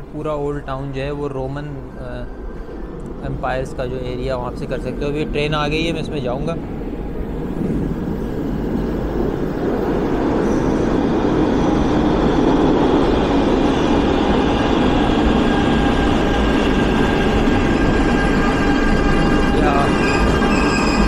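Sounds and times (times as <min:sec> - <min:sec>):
metro train rumbling: 0:00.0 - 0:21.0
high wheel squeal: 0:13.7 - 0:21.0.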